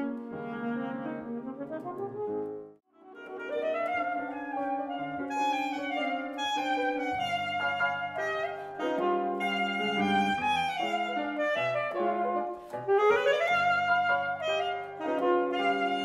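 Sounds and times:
piano chords: 0:00.0 - 0:16.0
saxophone melody: 0:00.0 - 0:16.0.

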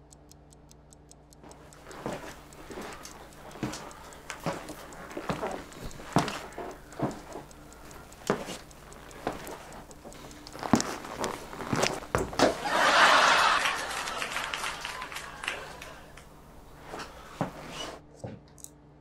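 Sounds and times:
footsteps on wooden floor: 0:01.5 - 0:12.7, 0:16.6 - 0:18.0.

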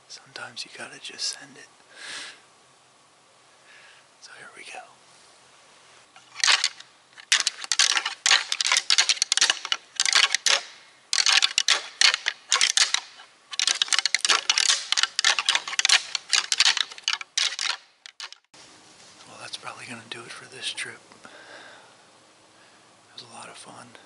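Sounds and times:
antlers clashing and rattling: 0:06.2 - 0:18.5.

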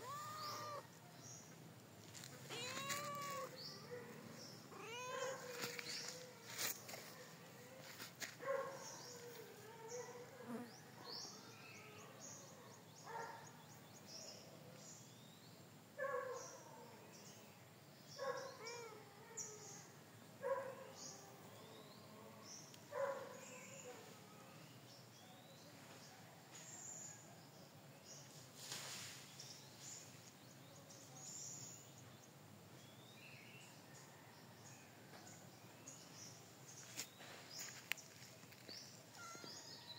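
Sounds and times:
cat meowing: 0:00.0 - 0:00.9, 0:02.5 - 0:03.6, 0:04.7 - 0:06.5, 0:39.1 - 0:39.9.

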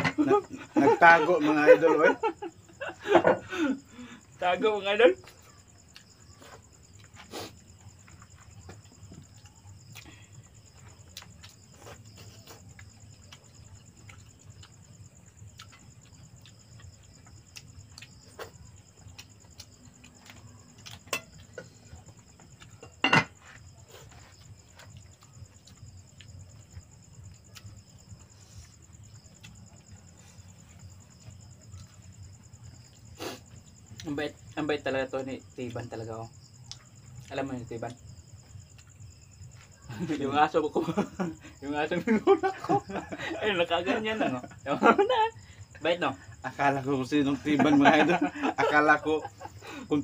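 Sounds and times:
insects chirring: 0:00.0 - 0:50.0.

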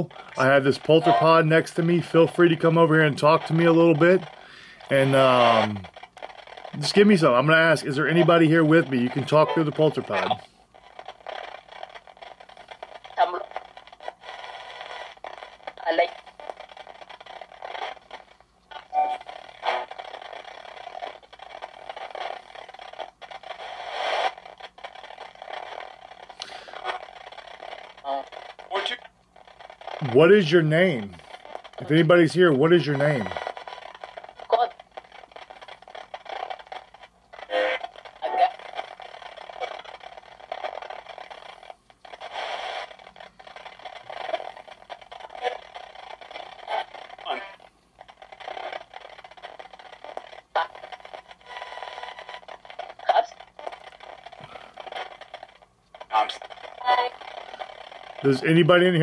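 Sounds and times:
radio static sweeping channels: 0:00.0 - 0:05.9, 0:06.8 - 0:10.4, 0:30.0 - 0:33.5, 0:56.1 - 0:59.0
radio static hiss: 0:00.0 - 0:59.0.

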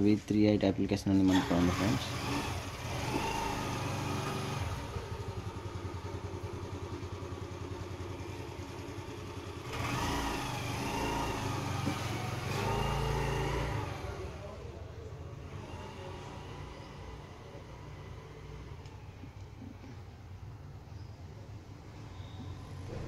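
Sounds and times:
engine throbbing: 0:01.3 - 0:14.6.

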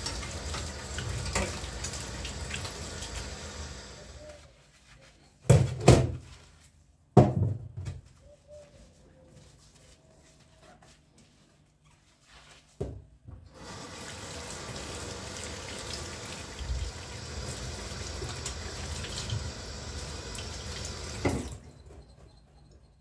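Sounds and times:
tap water running into sink: 0:00.0 - 0:04.2, 0:13.5 - 0:21.6
knock: 0:07.2 - 0:07.9.

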